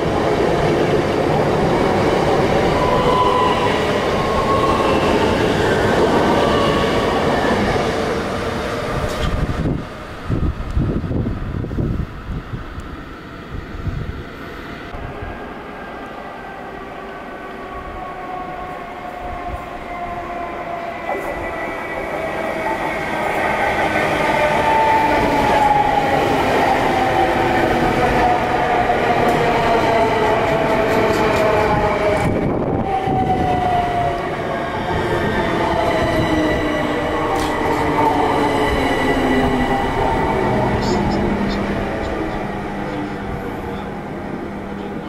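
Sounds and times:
electric train approaching: 0:00.0 - 0:45.0.

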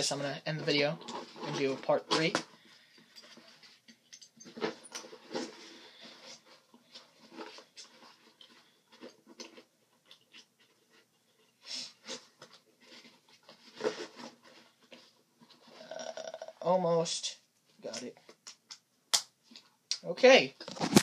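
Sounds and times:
fabric pouch rustling and scraping: 0:00.7 - 0:03.8, 0:04.4 - 0:09.6, 0:11.8 - 0:15.9.

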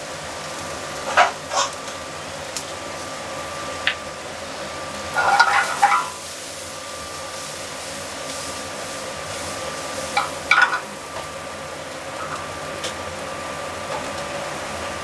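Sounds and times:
shallots frying in oil: 0:00.0 - 0:15.0
metal pan clattering on burner: 0:05.2 - 0:06.2, 0:10.1 - 0:10.9.

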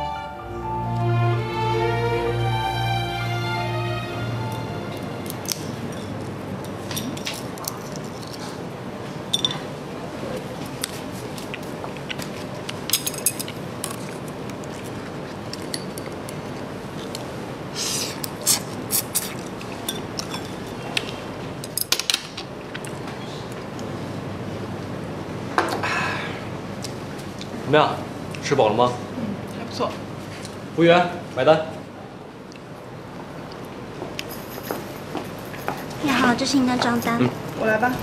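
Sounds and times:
steady background hiss: 0:00.0 - 0:11.1
chopsticks clinking on plates: 0:05.2 - 0:08.6, 0:12.9 - 0:14.1, 0:19.1 - 0:22.0.

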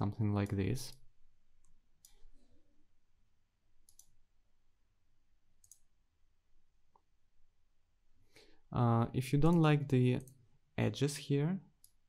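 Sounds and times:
computer mouse clicks: 0:01.6 - 0:02.3, 0:03.8 - 0:04.2, 0:05.6 - 0:05.9, 0:11.8 - 0:12.0.

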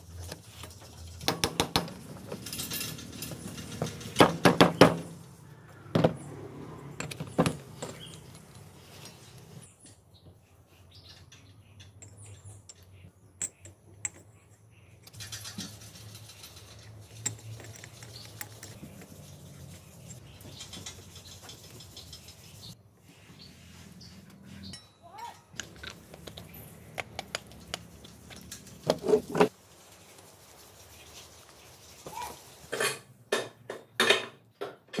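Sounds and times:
small metal parts clinking: 0:01.9 - 0:04.3, 0:15.0 - 0:18.8.

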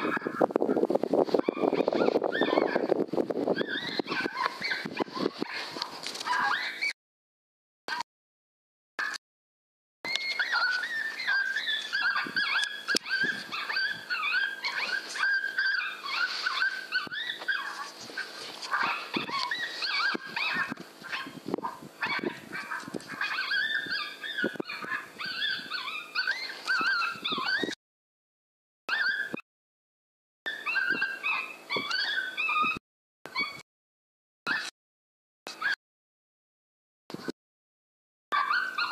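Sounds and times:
electronic coyote pup yelps: 0:00.0 - 0:07.0, 0:10.1 - 0:27.8, 0:28.9 - 0:29.4, 0:30.5 - 0:33.6, 0:34.5 - 0:34.7, 0:35.5 - 0:35.8, 0:38.3 - 0:38.9.

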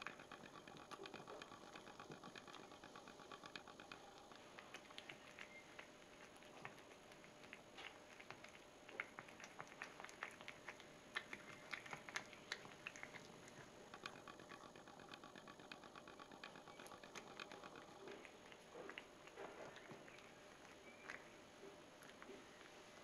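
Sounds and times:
fast run of small ticks: 0:00.0 - 0:21.3
cat chewing: 0:00.0 - 0:23.0.

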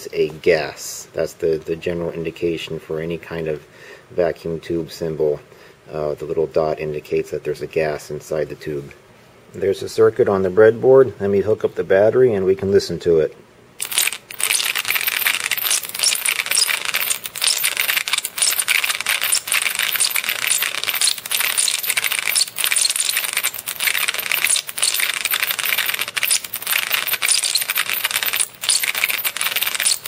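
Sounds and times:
high-pitched crackling hiss: 0:13.8 - 0:30.0.

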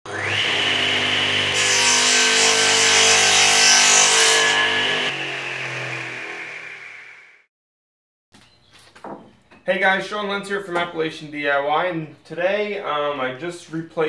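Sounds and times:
power tool motor whine: 0:00.1 - 0:01.6, 0:04.6 - 0:07.4
saw cutting wood: 0:00.1 - 0:07.5.

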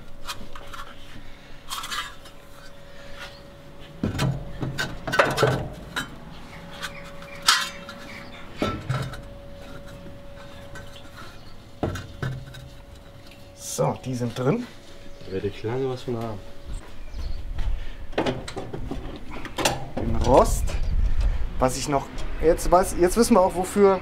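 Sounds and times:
metal bars clanking: 0:04.1 - 0:13.6.

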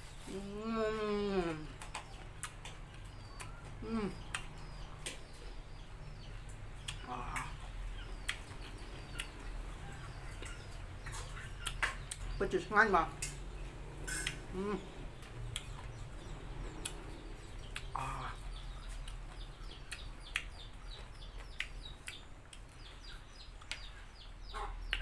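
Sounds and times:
small birds chirping: 0:00.0 - 0:25.0
chickens clucking: 0:13.2 - 0:25.0
person chewing: 0:14.0 - 0:14.6, 0:15.2 - 0:16.0.

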